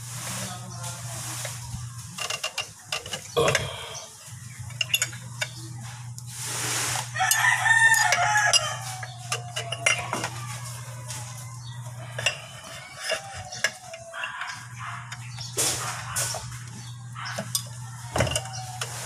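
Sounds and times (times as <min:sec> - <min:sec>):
wrench clinking on metal: 0:07.2 - 0:10.3, 0:12.1 - 0:15.4
drawn-out animal call: 0:08.1 - 0:19.0.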